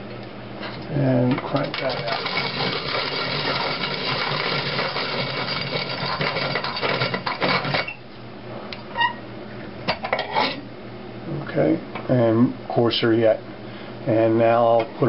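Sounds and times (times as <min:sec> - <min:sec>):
hand-cranked coffee grinder grinding: 0:01.4 - 0:08.0.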